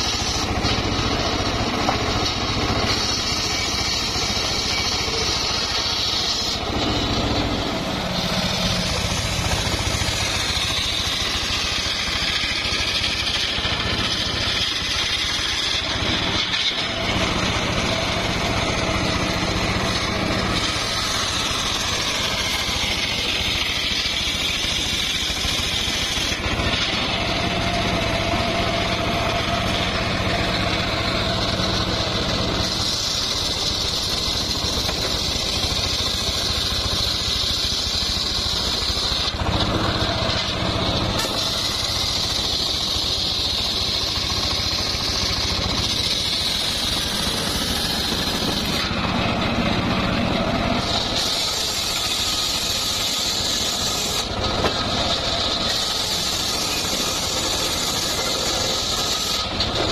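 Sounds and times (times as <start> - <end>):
engine droning: 0.0 - 59.9
saw blade ripping through timber: 0.0 - 59.9.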